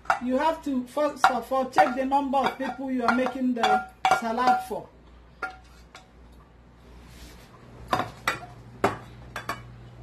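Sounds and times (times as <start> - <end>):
utensils knocking on steel bowl: 0.0 - 4.8.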